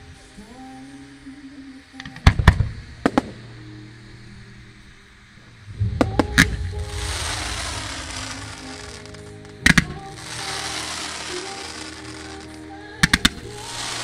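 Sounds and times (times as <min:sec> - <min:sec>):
music with sustained notes: 0:00.0 - 0:14.0
firework shells bursting: 0:06.0 - 0:14.0.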